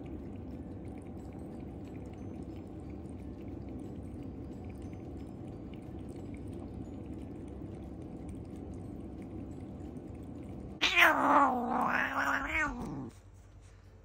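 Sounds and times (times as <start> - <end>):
cat lapping water: 0.0 - 13.2
cat angry yowl: 10.8 - 13.1.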